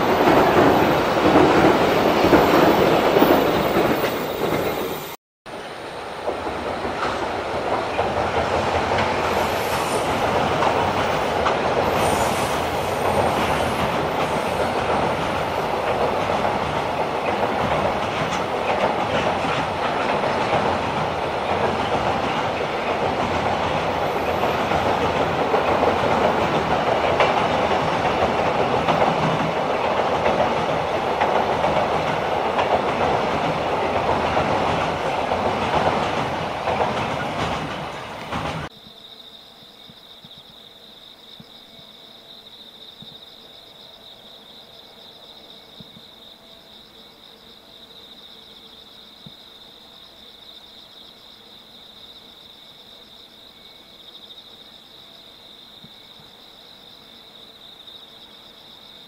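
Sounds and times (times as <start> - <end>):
wheels clacking on rail joints: 0.0 - 5.1, 6.2 - 38.7
freight train rumbling over bridge: 0.0 - 38.7
insects chirping: 0.0 - 59.0.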